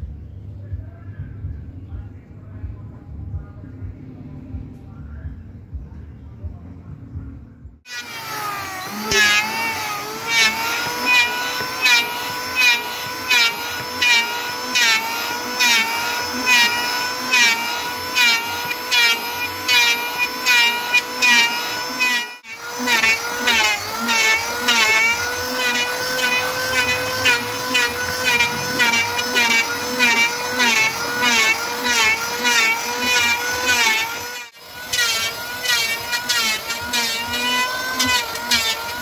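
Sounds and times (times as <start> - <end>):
electric planer motor whine: 7.9 - 39.0
planer shaving wood: 7.9 - 39.0.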